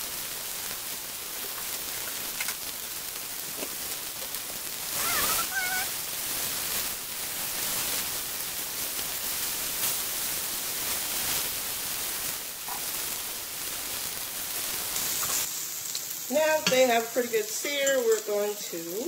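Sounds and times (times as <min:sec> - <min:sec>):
mushrooms sizzling in oil: 0:00.0 - 0:19.0
tongs clicking: 0:17.7 - 0:18.3.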